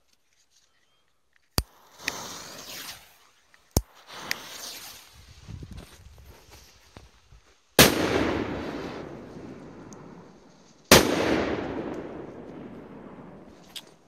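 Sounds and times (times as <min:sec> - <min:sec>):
firecracker bangs: 0:07.8 - 0:09.9, 0:10.9 - 0:13.6.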